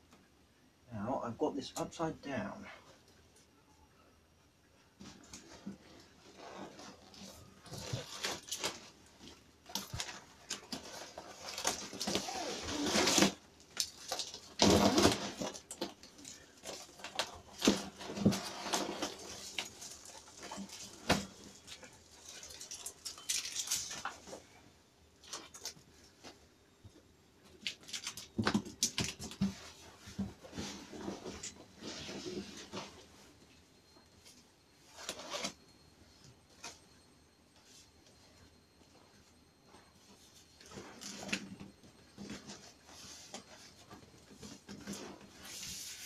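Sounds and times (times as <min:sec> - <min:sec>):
plastic wrap crinkling: 0:06.4 - 0:24.4, 0:27.6 - 0:29.5.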